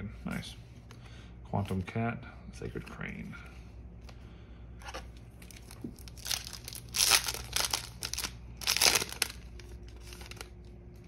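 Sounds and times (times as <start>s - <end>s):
foil wrapper tearing and crinkling: 5.4s - 10.7s.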